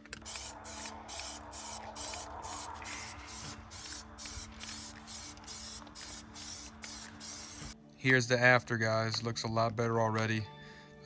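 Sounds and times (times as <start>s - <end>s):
aerosol can spraying bursts: 0.0s - 7.8s.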